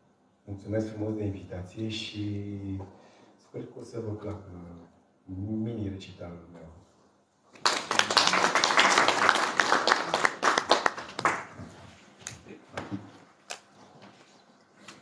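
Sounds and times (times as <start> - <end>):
audience applauding: 7.6 - 11.6.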